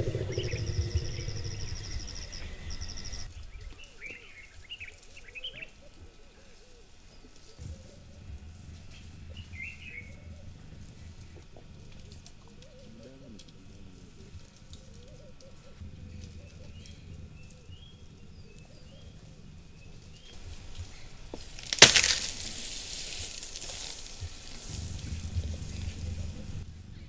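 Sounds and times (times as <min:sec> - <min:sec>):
faint bird calls: 0:00.0 - 0:21.4
leaves rustling and thrashing: 0:19.9 - 0:26.7
branch cracking: 0:20.0 - 0:26.4.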